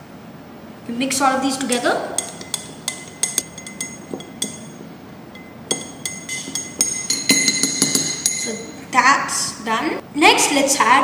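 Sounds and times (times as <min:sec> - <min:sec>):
teaspoon clinking against glass: 0:02.2 - 0:08.8.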